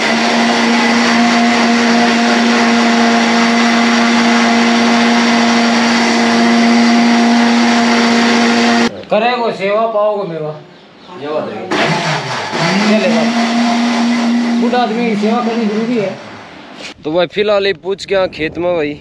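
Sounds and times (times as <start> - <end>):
small engine running at high speed: 0.0 - 8.9, 11.7 - 16.7.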